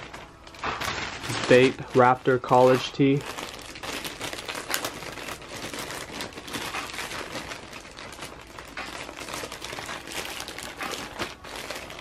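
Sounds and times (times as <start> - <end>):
plastic bag crinkling: 0.0 - 12.0.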